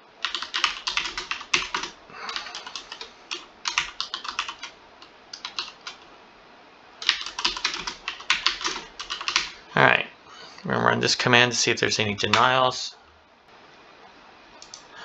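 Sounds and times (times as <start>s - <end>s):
typing on computer keyboard: 0.2s - 4.7s, 5.3s - 6.0s, 7.0s - 9.6s.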